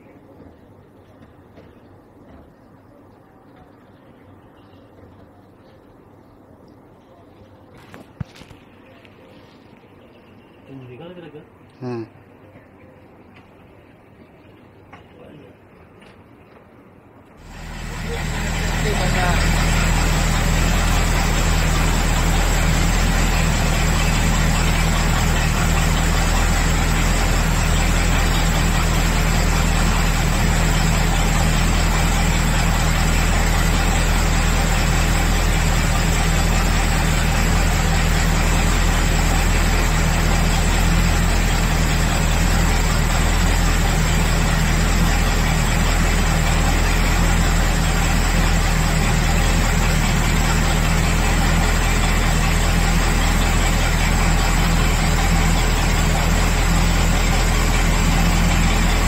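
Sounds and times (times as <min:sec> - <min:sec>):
engine idling: 0:17.4 - 0:59.0.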